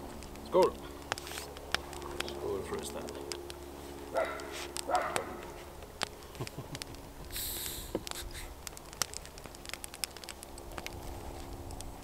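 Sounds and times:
short hiss: 0:07.3 - 0:08.5.

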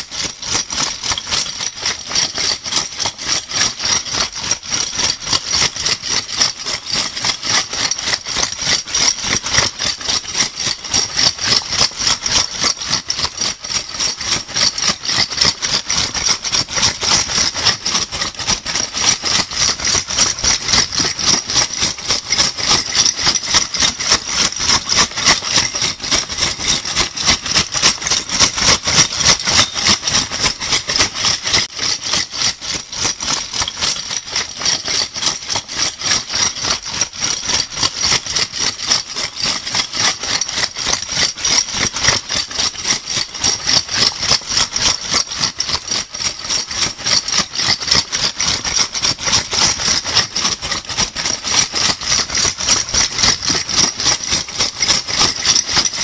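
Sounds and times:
bottle caps rattling: 0:23.8 - 0:31.7.

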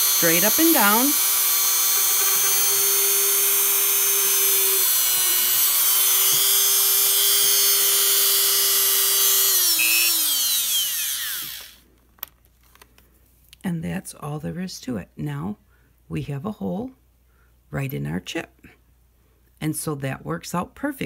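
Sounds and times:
motor spinning down: 0:00.0 - 0:11.8
rotary tool drilling plastic: 0:00.0 - 0:11.8.

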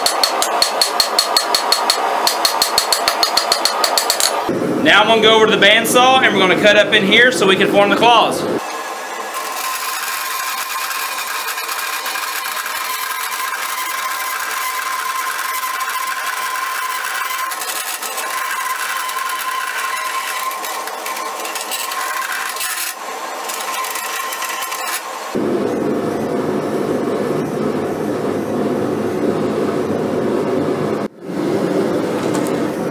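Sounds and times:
bandsaw whine: 0:08.0 - 0:28.8
bandsaw rasping through metal: 0:08.6 - 0:25.4.

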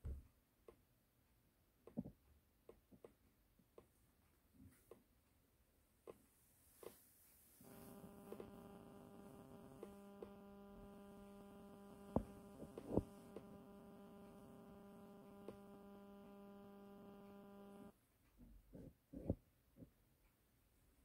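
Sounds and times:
faint electrical hum: 0:03.6 - 0:21.0
lower hum tone: 0:07.6 - 0:17.9.

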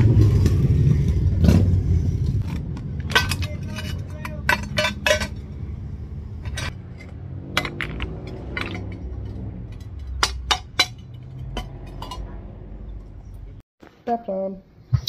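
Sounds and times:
low steady rumble: 0:00.0 - 0:13.6
metal tongs clinking on moulds: 0:02.5 - 0:05.7, 0:06.4 - 0:13.4.

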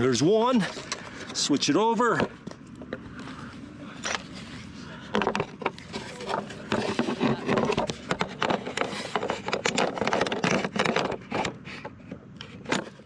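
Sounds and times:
metal clicks knocks and scrapes: 0:05.1 - 0:13.0.

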